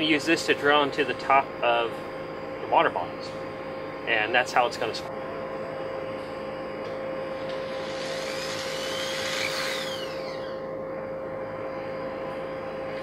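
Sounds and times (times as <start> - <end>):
background hum: 0.0 - 13.0
electric drill whining: 7.4 - 10.7.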